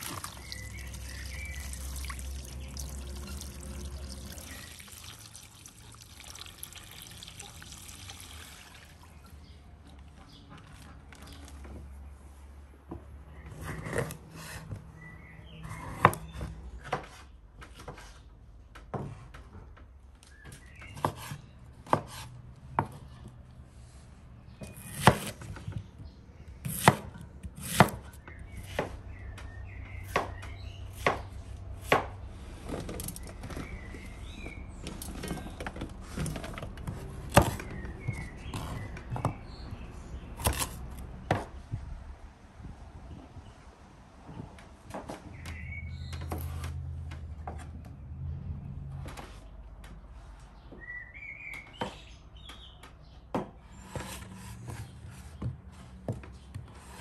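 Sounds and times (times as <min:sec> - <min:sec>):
knife chopping on wooden board: 0:20.9 - 0:23.0, 0:24.6 - 0:25.5, 0:26.6 - 0:29.0, 0:30.0 - 0:32.2, 0:40.4 - 0:41.5.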